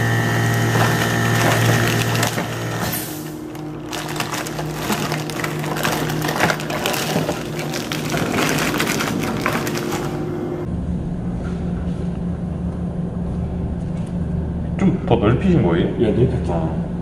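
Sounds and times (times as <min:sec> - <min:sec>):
steady low hum: 0:00.0 - 0:17.0
plastic bag crinkling: 0:00.4 - 0:10.6
cardboard box rustling: 0:00.7 - 0:10.2.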